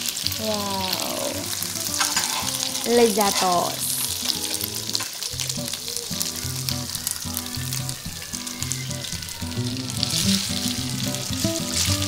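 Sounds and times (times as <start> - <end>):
beef sizzling in a frying pan: 0.0 - 12.0
background music: 6.5 - 12.0.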